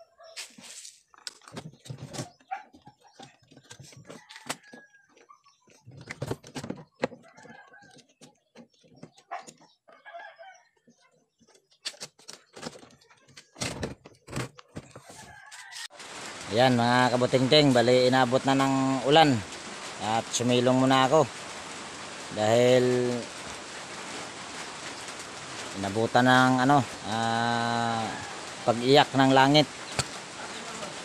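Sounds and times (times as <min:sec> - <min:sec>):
chickens clucking: 0:01.6 - 0:11.8
rooster crowing: 0:15.1 - 0:16.0, 0:27.6 - 0:28.8.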